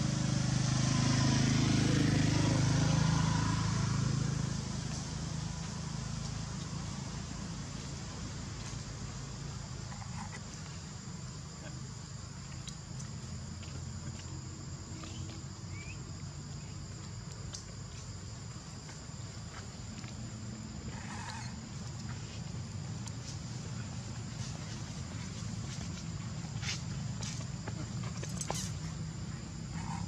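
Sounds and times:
insects droning: 0.0s - 30.0s.

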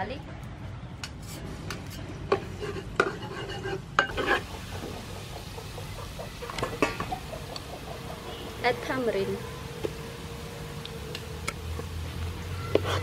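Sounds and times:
metal spoon clinking and scraping: 2.3s - 4.5s
garlic sizzling in oil: 2.4s - 13.0s.

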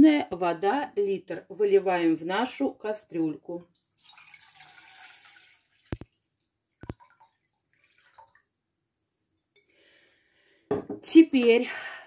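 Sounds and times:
water drips into water: 3.6s - 8.6s.

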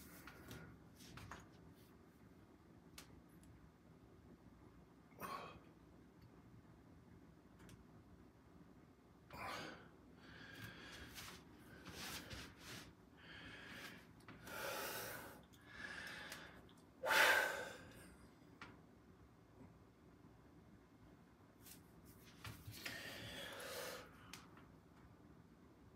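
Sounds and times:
man breathing hard: 9.4s - 12.3s, 13.2s - 18.0s, 22.8s - 24.2s.

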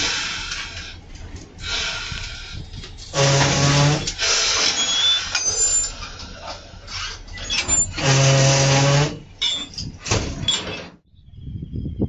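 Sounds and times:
compressed air hissing: 1.6s - 5.3s
metallic clicks and clanks: 9.3s - 11.0s.

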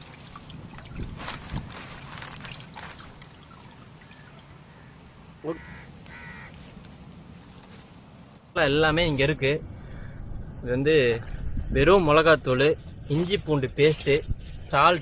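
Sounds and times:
water splashing and dripping: 0.0s - 4.7s
crow cawing: 4.7s - 6.7s.

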